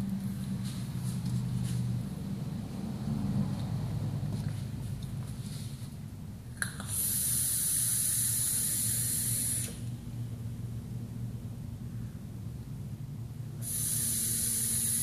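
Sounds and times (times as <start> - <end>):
coil sizzle and air hiss: 6.6 - 10.0, 13.6 - 15.0.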